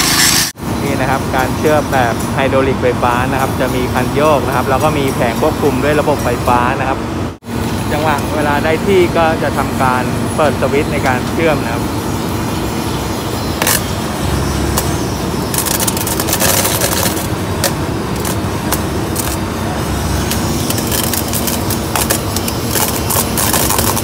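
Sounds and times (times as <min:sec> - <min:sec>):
welding machine running: 0:00.0 - 0:24.0
crackle of sparks: 0:14.8 - 0:19.4, 0:20.2 - 0:24.0.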